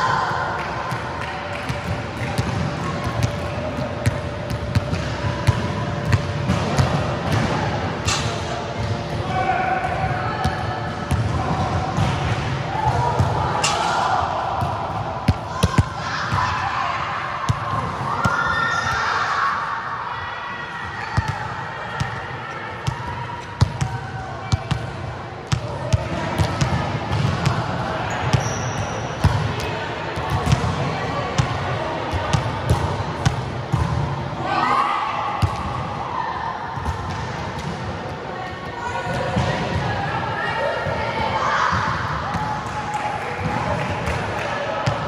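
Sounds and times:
players' voices: 0:00.0 - 0:45.0.

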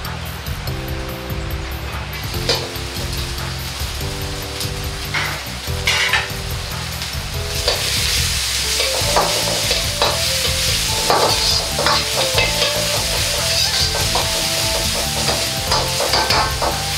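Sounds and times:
vegetables sizzling in a wok: 0:02.1 - 0:16.9
metal ladle scraping a wok: 0:05.2 - 0:06.4.

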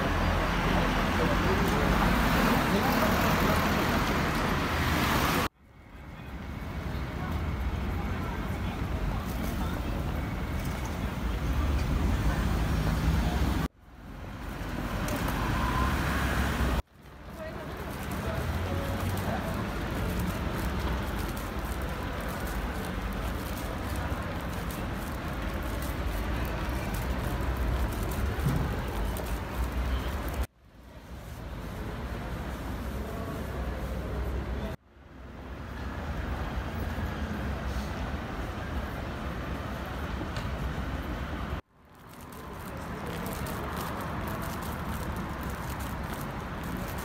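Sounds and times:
road traffic rumble: 0:00.0 - 0:47.0.

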